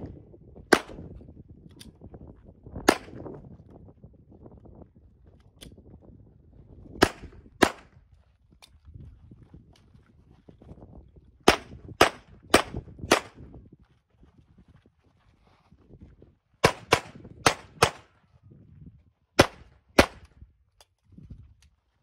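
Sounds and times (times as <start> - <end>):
pistol shots: 0.7 - 1.0, 7.0 - 7.9, 11.5 - 13.4, 16.6 - 18.1, 19.4 - 20.3.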